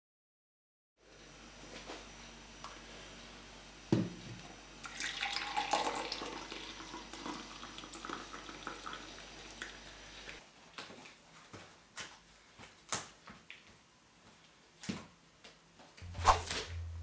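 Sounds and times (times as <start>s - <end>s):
coffee pouring into mug: 4.8s - 9.9s.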